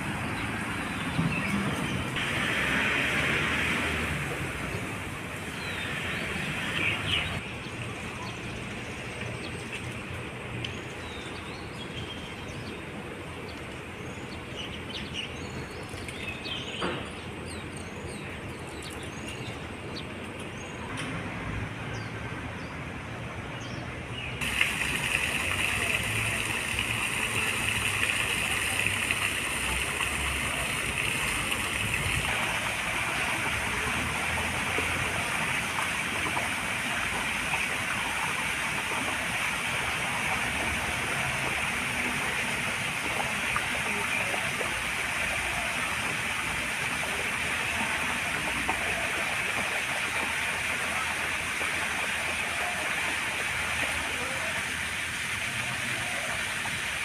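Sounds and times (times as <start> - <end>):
fountain water splashing into pond: 0.0 - 16.8, 24.4 - 57.0.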